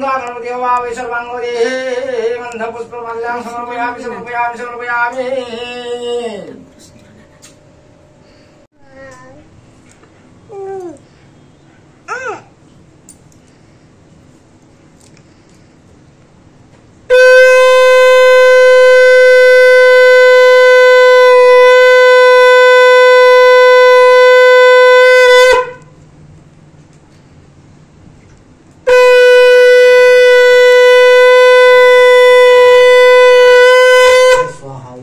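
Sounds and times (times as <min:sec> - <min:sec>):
conch shell blasts: 0:17.1 - 0:26.0, 0:28.8 - 0:34.7.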